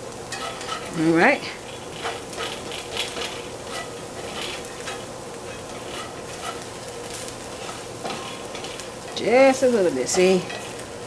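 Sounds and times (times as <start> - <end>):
noodles sizzling in a skillet: 0.0 - 11.0
utensil scraping and tapping pan: 1.9 - 6.6.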